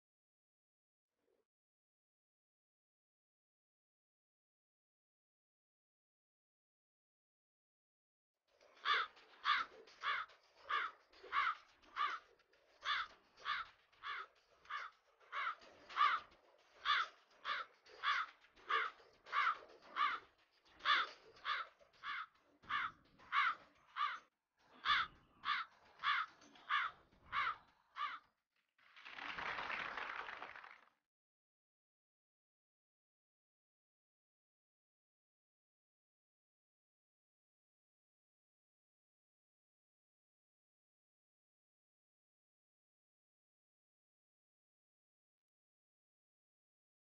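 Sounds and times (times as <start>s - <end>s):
crow cawing: 8.8s - 28.3s
applause: 28.8s - 31.1s.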